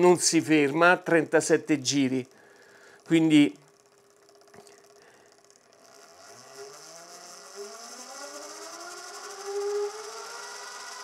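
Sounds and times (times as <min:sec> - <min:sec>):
spindle motor whine rising: 0:03.0 - 0:11.0.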